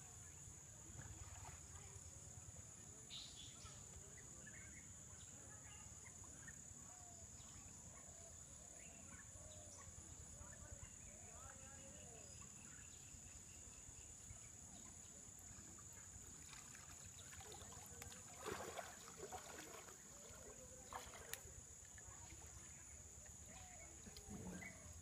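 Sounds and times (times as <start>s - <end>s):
water splashing: 16.2s - 23.0s.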